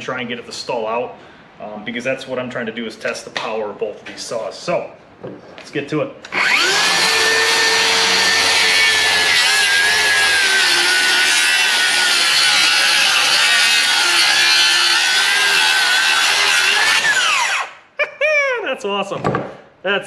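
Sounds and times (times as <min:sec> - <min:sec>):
circular saw cutting wood: 0:06.3 - 0:17.7.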